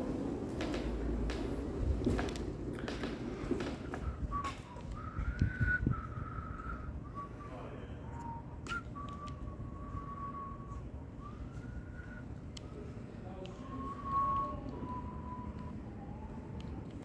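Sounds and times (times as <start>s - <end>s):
person whistling a slow tune: 3.9s - 12.9s, 13.5s - 16.8s.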